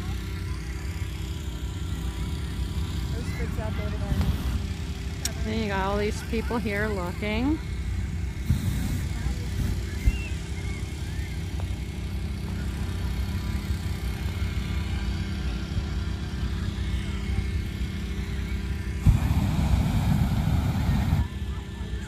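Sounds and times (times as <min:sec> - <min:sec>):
low background rumble: 0:00.0 - 0:22.0
propane burner blast: 0:08.3 - 0:10.3, 0:17.6 - 0:21.6.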